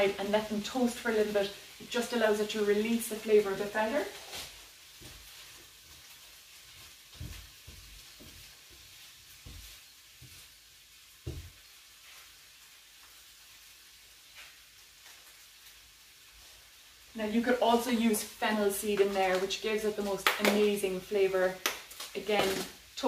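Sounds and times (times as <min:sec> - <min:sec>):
frying pan sizzling: 0:00.0 - 0:23.0.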